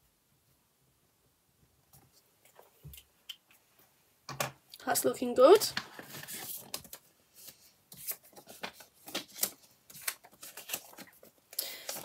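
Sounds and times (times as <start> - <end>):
banknotes and plastic pouch crinkling: 5.4 - 12.0.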